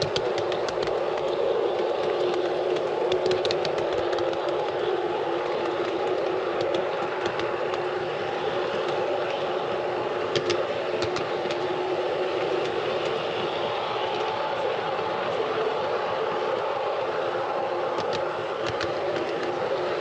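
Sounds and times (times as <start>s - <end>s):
wheels clicking over rail joints: 0.0s - 15.7s.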